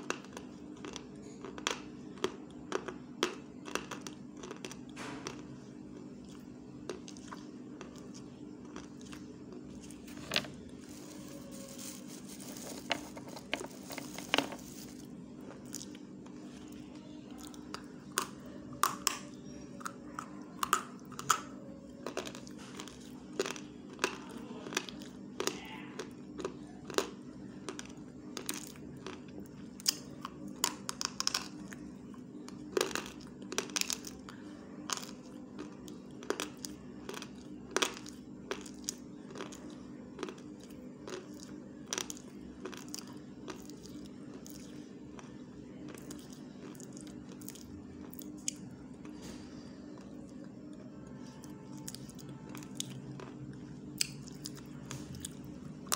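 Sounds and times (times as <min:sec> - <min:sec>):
steady low hum: 0:00.0 - 0:55.9
lip and teeth clicks and smacks: 0:54.0 - 0:55.4.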